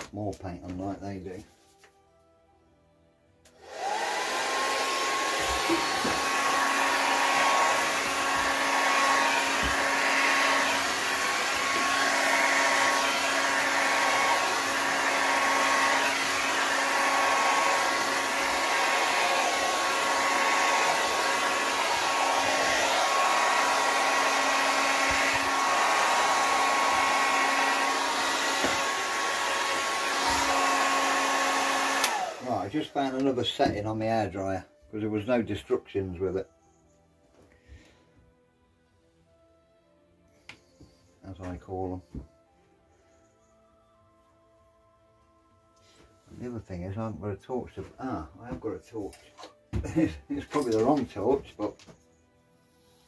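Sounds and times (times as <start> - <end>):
hair dryer running: 3.5 - 33.8.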